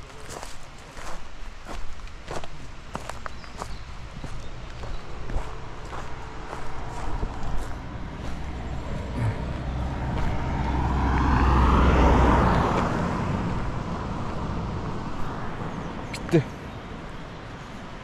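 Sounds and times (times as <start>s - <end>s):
car driving past: 5.2s - 16.1s.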